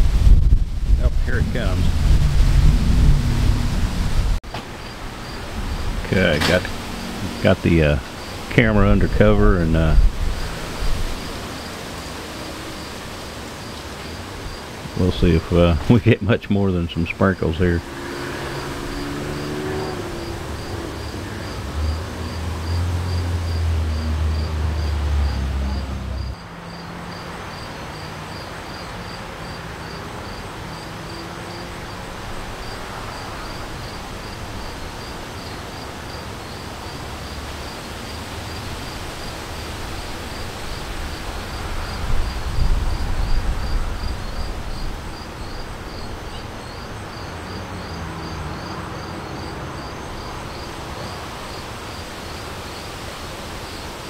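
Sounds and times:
wind buffeting microphone: 0.0 - 23.8, 38.4 - 47.2
gusty wind: 0.0 - 28.8, 29.4 - 54.0
night insects chirping: 1.4 - 54.0.

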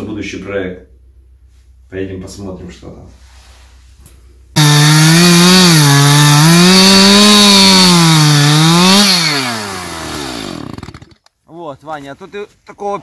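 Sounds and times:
chainsaw cutting wood: 4.6 - 11.3.

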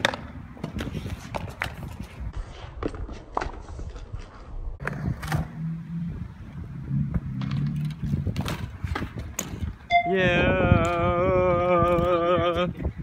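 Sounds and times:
bike tyres and frame clicking: 6.4 - 13.0.

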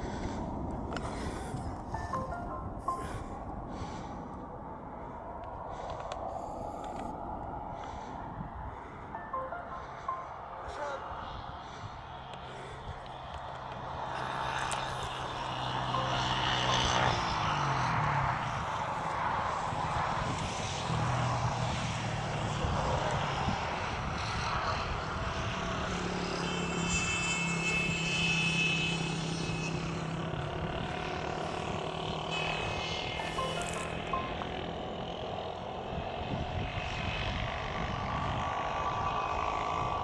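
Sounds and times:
plane flying over: 0.0 - 40.0.

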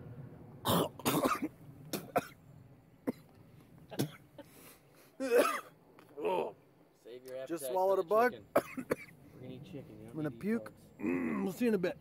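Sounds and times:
man clearing his throat: 0.6 - 2.4, 5.2 - 5.7
man coughing: 0.7 - 2.4, 4.0 - 4.2, 5.2 - 5.7, 8.6 - 9.1.

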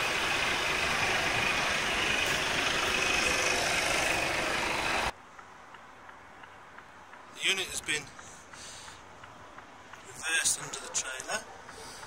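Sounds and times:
diesel truck engine idling: 0.0 - 5.1.

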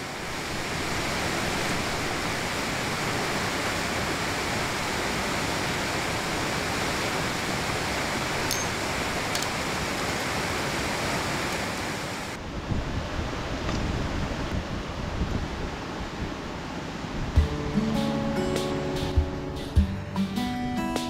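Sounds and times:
stream water rushing: 0.0 - 19.8
wind rumble on microphone: 11.3 - 17.5.

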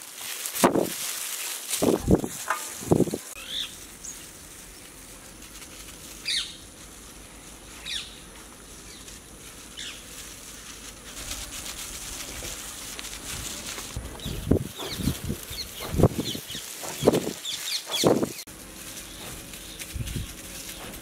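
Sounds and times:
bird chirping: 3.4 - 4.9, 6.2 - 6.6, 7.8 - 9.1, 14.0 - 21.0.

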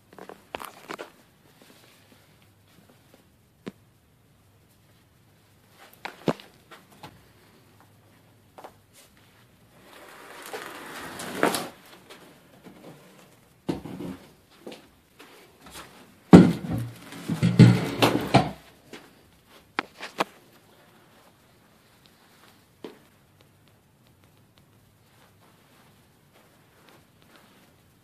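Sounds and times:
knocks and bumps: 16.3 - 18.6
thuds: 16.3 - 18.6.

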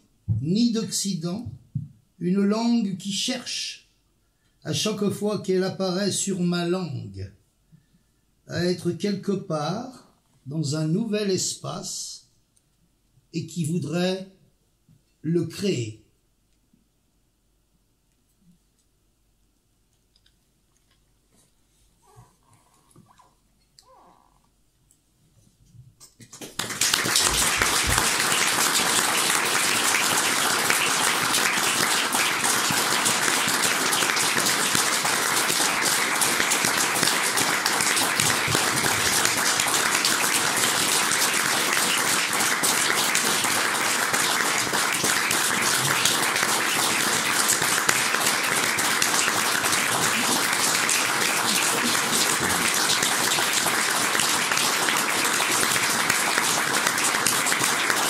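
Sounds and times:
audience applauding: 26.4 - 58.0.

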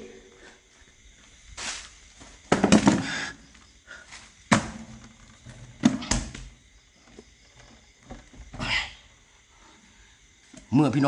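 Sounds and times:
sharp knocks and bumps: 2.2 - 3.4, 4.4 - 8.8.

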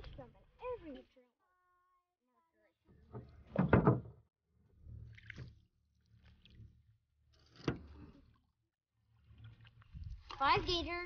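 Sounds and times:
paddle splashes against canoe hull: 5.1 - 5.6.

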